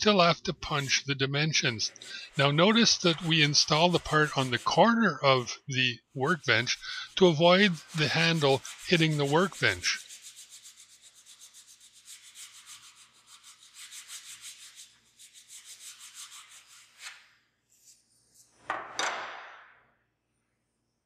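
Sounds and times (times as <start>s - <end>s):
hand file scraping steel: 0.6s - 5.0s, 6.2s - 18.4s.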